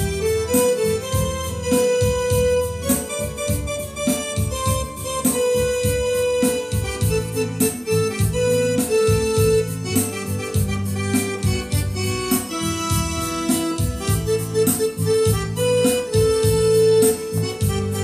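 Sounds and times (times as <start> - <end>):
electronic keyboard melody with beat: 0.0 - 18.0.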